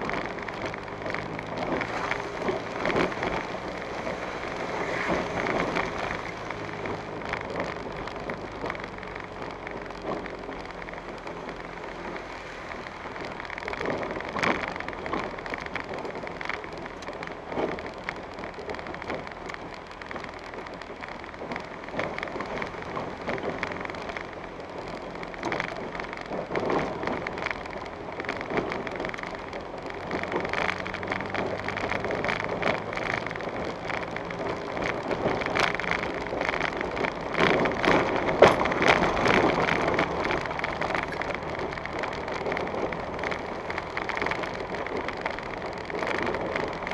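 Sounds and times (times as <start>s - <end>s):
tyres crackling on gravel: 0.0s - 46.9s
vehicle body rattling: 13.1s - 46.9s.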